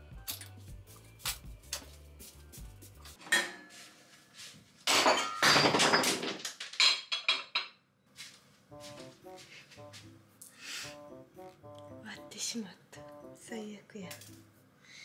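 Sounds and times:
crockery shattering: 0:04.9 - 0:07.7.

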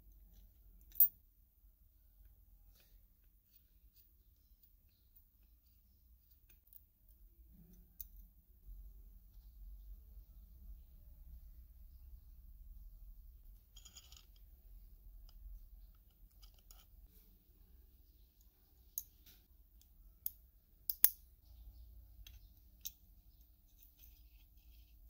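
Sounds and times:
soft handling sounds: 0:02.1 - 0:08.2, 0:22.2 - 0:25.0
small metal parts clicking: 0:13.8 - 0:14.4.

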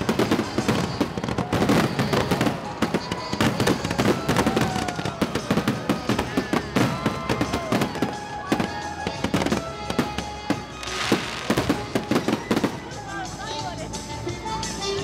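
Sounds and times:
fireworks bursting: 0:00.0 - 0:13.4
music: 0:00.0 - 0:15.0.

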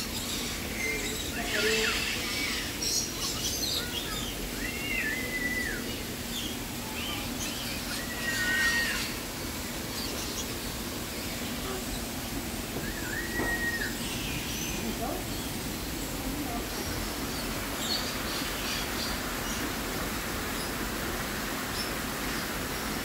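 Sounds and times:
parrots whistling calls: 0:01.0 - 0:06.0, 0:07.0 - 0:09.2, 0:12.8 - 0:14.8
high bird chirps: 0:12.8 - 0:14.8.

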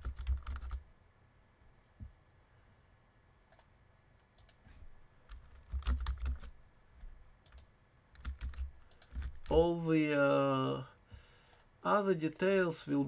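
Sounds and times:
computer keyboard typing: 0:00.0 - 0:00.8, 0:04.4 - 0:04.6, 0:05.2 - 0:06.5, 0:07.4 - 0:09.6.

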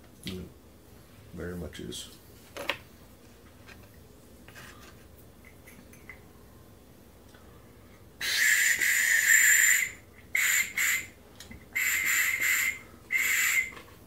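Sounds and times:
shrill whistle toots: 0:08.2 - 0:11.1, 0:11.8 - 0:13.8.

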